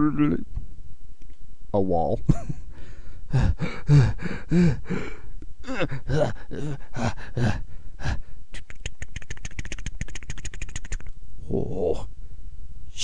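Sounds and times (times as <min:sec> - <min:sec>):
man grunting with effort: 0:03.3 - 0:08.2.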